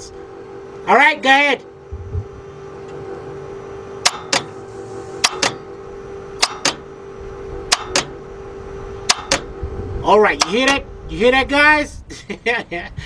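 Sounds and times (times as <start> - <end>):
starter solenoid double clicks: 4.0 - 4.6, 5.2 - 5.6, 6.4 - 6.9, 7.7 - 8.2, 9.1 - 9.5, 10.4 - 10.8.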